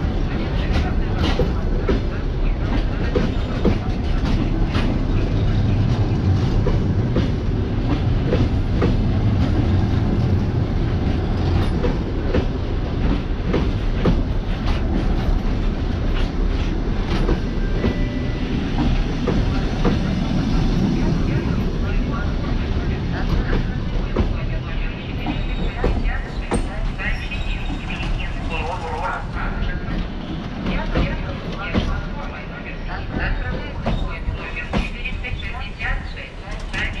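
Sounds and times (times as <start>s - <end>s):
train coaches rumbling past: 0.0s - 37.0s.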